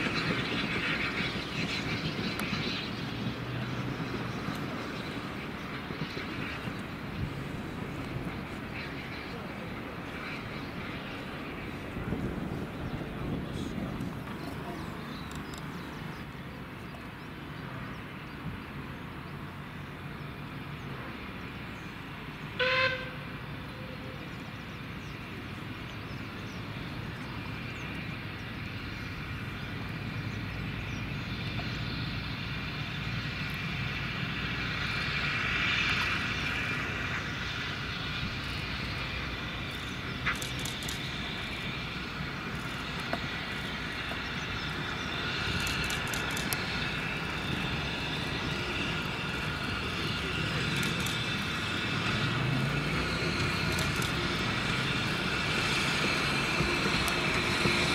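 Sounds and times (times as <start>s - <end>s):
steam train approaching: 0.0s - 57.9s
steam locomotive whistle: 22.5s - 24.3s.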